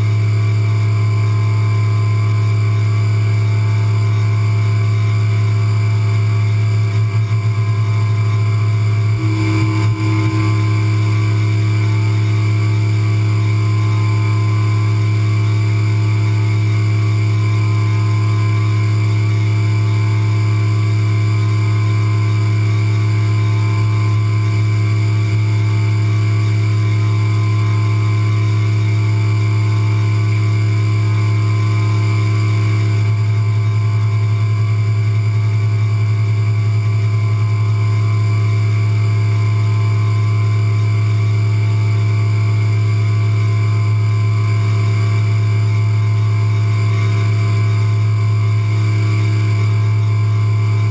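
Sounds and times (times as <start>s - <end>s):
milling machine spindle hum: 0.0s - 50.9s
high cutting tone: 9.1s - 15.9s.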